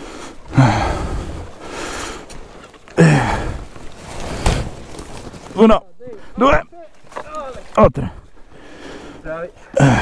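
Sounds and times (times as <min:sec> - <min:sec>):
heavy breath out: 0:00.0 - 0:04.7, 0:08.0 - 0:10.0
grunts of effort: 0:00.5 - 0:01.4, 0:02.9 - 0:03.7, 0:09.6 - 0:10.0.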